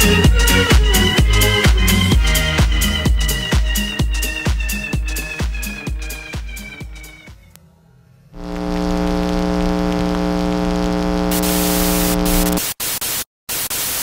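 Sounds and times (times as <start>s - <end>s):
electronic buzz with hiss: 8.4s - 14.0s
white-noise static: 8.4s - 14.0s.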